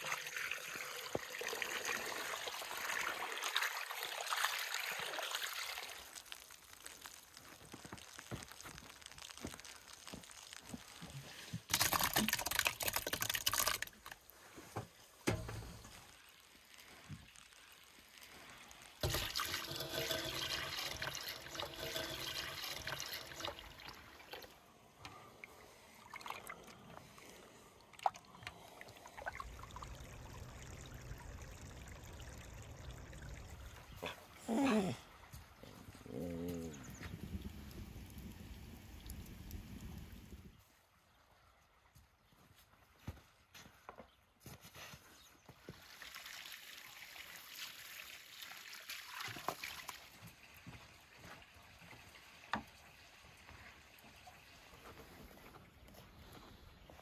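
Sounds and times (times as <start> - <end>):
milk pouring into metal pot: 0.0 - 14.3, 15.3 - 34.0
splashing water: 0.0 - 14.5, 15.8 - 35.0, 45.6 - 50.5.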